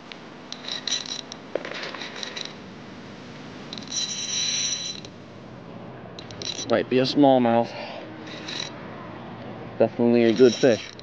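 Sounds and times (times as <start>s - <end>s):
fishing reel whirring: 0.5s - 1.4s, 3.7s - 5.1s, 6.2s - 6.8s, 8.2s - 8.8s, 10.2s - 11.0s.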